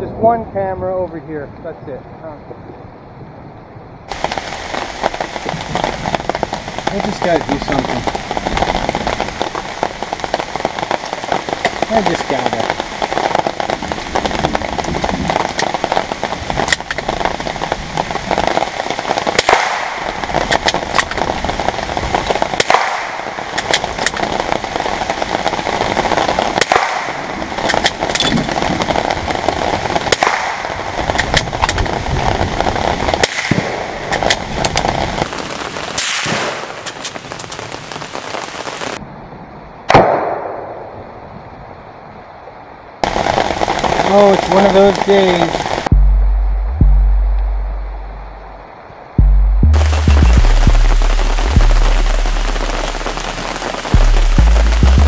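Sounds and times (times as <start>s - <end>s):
rain on canopy: 4.1s - 55.0s
rifle shots: 19.4s - 21.1s, 22.6s - 24.2s, 26.6s - 28.5s, 30.1s - 31.4s, 33.2s - 34.3s, 36.0s - 37.0s, 39.9s - 40.9s
loud explosion: 49.2s - 55.0s.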